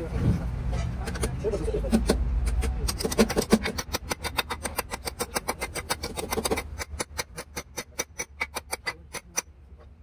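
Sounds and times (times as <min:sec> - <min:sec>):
hammer tapping on metal: 0:01.0 - 0:09.5.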